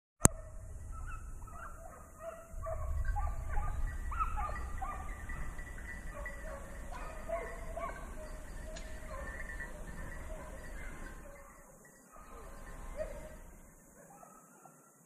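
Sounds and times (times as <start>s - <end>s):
hunting dogs baying and barking: 0.2s - 15.0s
low rumble on microphone: 0.3s - 11.3s.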